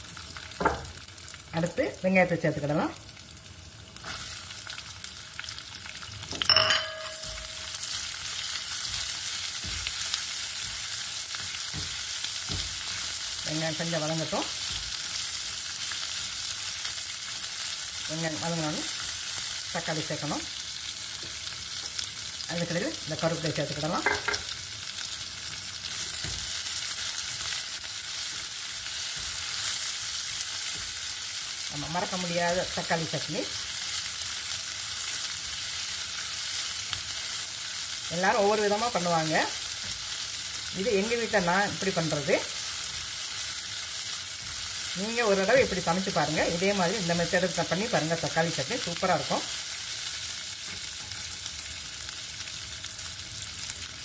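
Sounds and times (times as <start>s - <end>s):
onions sizzling in oil: 0.0s - 54.0s
metal clink: 6.4s - 7.8s.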